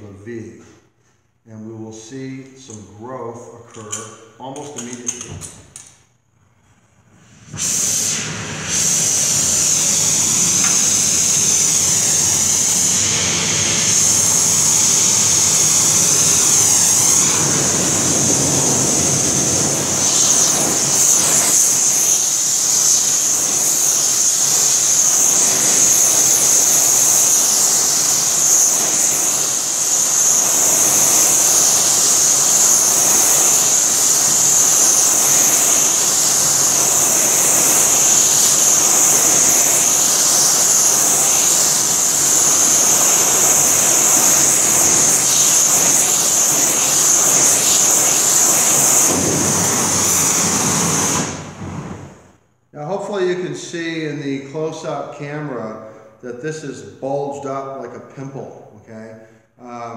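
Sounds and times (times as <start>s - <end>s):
torch flame hissing: 6.7s - 52.4s.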